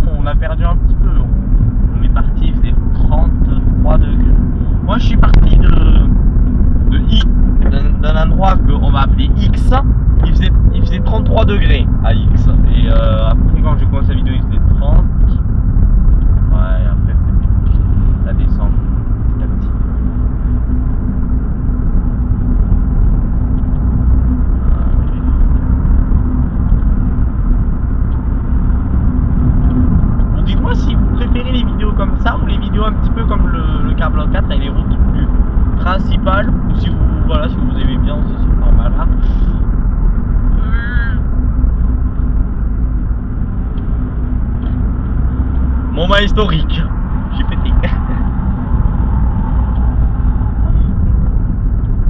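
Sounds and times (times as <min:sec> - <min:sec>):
engine and tyre rumble: 0:00.0 - 0:52.0
road noise: 0:00.0 - 0:52.0.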